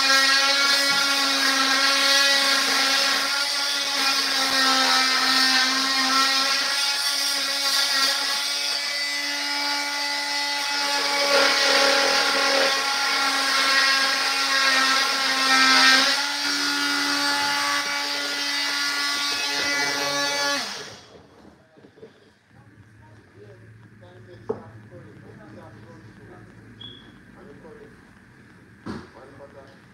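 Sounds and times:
cordless power tool cutting wood: 0.0s - 21.5s.

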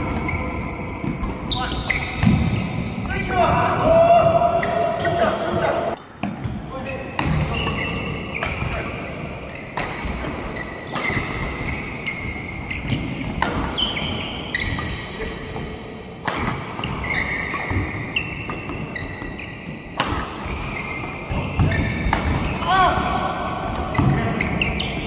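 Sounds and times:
shoes squeaking on court floor: 0.0s - 3.5s, 4.4s - 22.8s, 23.7s - 25.0s
rackets striking shuttlecock: 7.2s - 22.7s.

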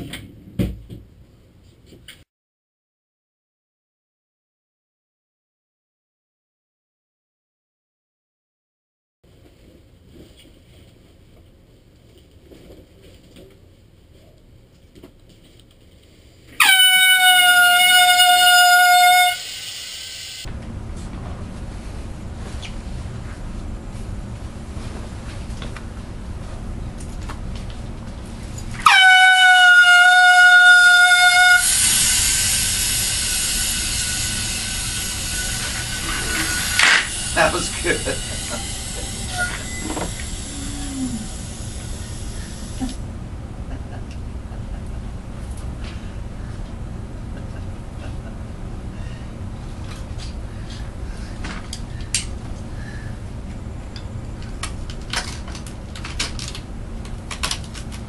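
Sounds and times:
low room hum: 9.3s - 58.0s
air horn blaring: 16.6s - 19.6s, 28.8s - 34.1s
loud hiss: 17.9s - 20.5s, 31.3s - 43.0s.

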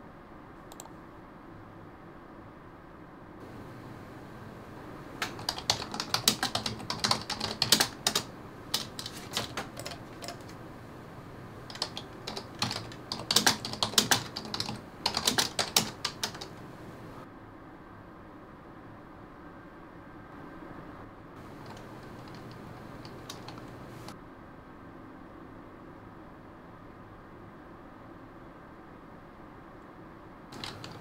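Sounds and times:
typing on computer keyboard: 5.1s - 10.8s, 11.5s - 17.2s, 21.4s - 24.2s, 30.5s - 31.0s.

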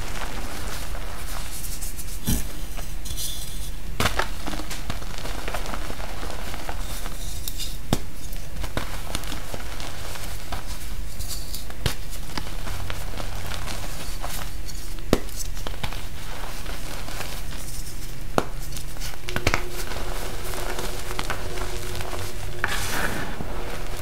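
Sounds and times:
low steady hum: 0.0s - 24.0s
chalk crunching: 16.3s - 24.0s.

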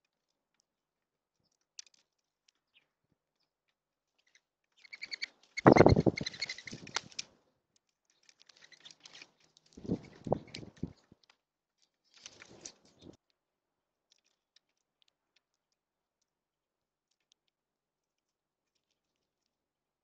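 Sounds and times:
faint ticks and rustles: 0.0s - 19.8s
dove wings flapping with whistling: 5.0s - 7.2s, 9.8s - 10.9s.

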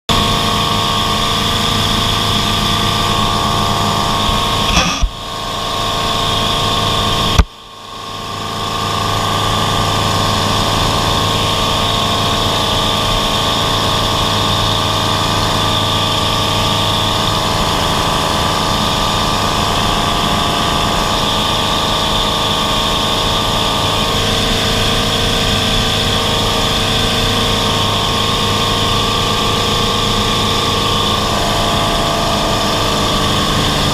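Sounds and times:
propeller plane engine droning: 0.1s - 33.9s
sharp knocks: 4.7s - 5.1s.

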